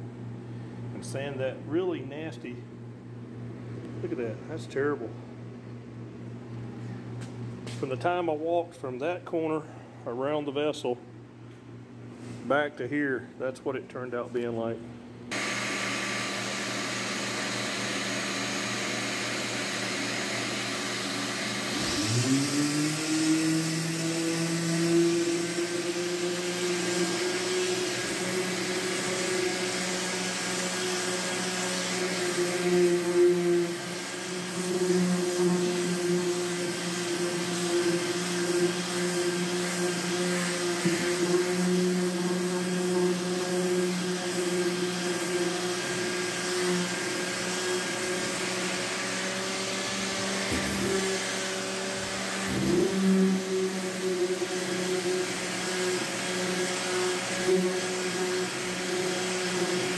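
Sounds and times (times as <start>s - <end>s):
orbital sander sanding: 15.3s - 59.9s.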